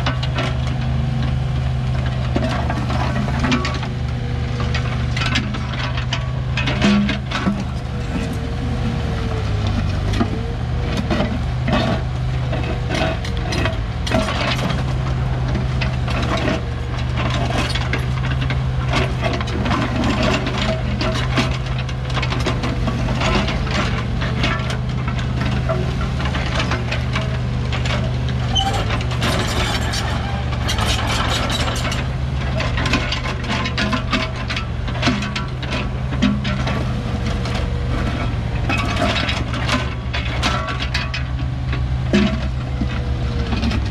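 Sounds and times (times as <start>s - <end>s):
excavator diesel engine running: 0.0s - 43.9s
clanks and knocks from digging: 2.0s - 4.0s, 4.6s - 8.4s, 9.7s - 43.9s.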